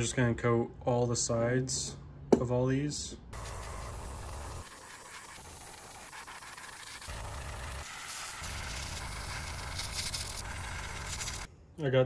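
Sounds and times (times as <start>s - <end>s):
airbrush spraying hiss: 3.4s - 11.5s.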